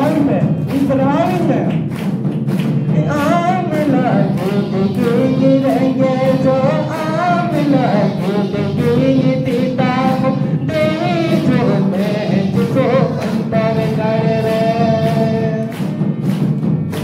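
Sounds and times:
low accompaniment: 0.0s - 17.0s
sharp rhythmic ticks: 0.0s - 17.0s
congregation singing a hymn: 2.9s - 16.2s.

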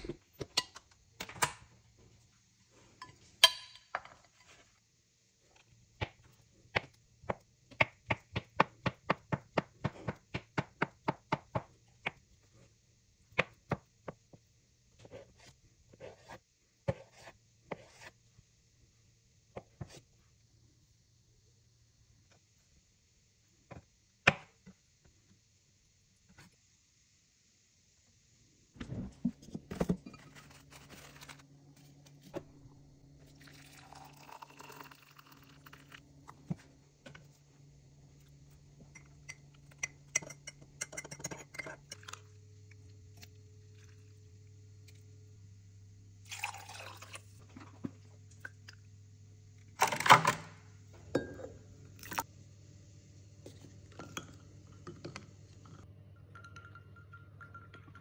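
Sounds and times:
glassware and spoon clinking: 3.0s - 4.0s, 39.0s - 42.2s, 51.1s - 51.6s, 56.2s - 58.0s
liquid pouring: 33.2s - 36.0s, 46.2s - 47.4s, 52.0s - 52.2s.

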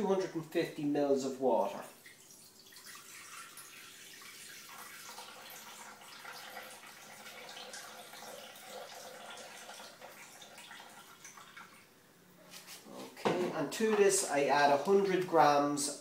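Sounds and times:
water pouring into steel bowl: 2.1s - 11.8s.

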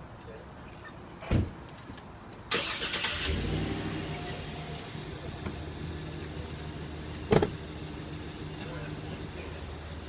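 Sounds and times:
thump: 1.3s - 1.5s, 7.3s - 7.6s
engine cranking and idling: 2.5s - 10.0s.

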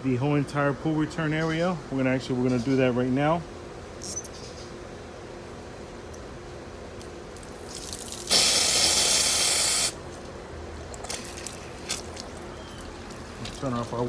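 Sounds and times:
loud spraying hiss of pressure release: 8.3s - 10.0s.

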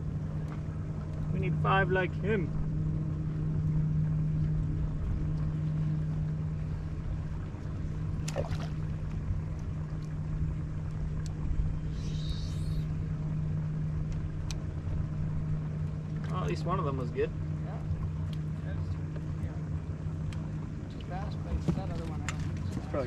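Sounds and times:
electric boat motor humming: 0.0s - 23.0s.

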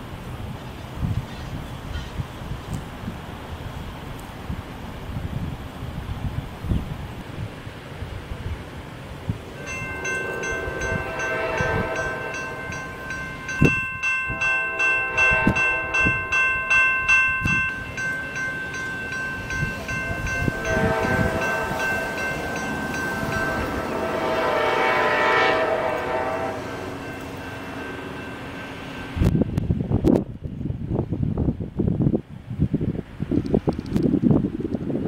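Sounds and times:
railroad crossing bells ringing: 9.5s - 29.8s.

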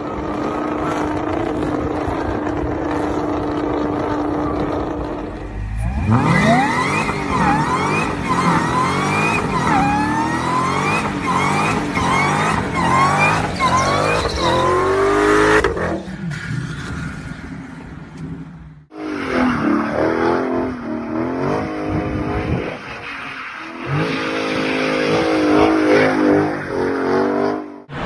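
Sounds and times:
car engine revving: 0.0s - 16.1s
tyres squealing and skidding: 4.2s - 17.9s, 19.0s - 21.1s, 22.0s - 28.0s.

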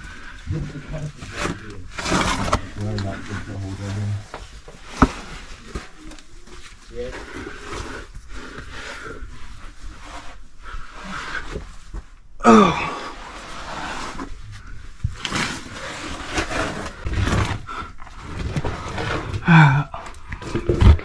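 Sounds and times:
man grunting: 12.4s - 13.1s, 19.4s - 20.0s.

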